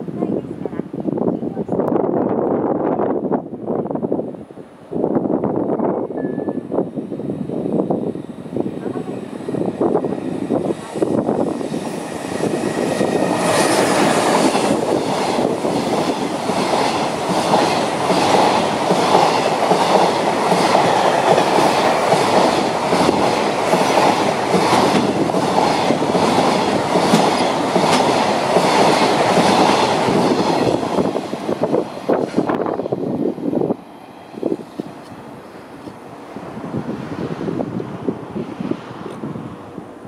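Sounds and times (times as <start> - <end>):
electric locomotive passing: 0.0 - 40.0
train wagons rushing past: 4.9 - 40.0
wheels clickety-clack over rail joints: 8.6 - 33.2.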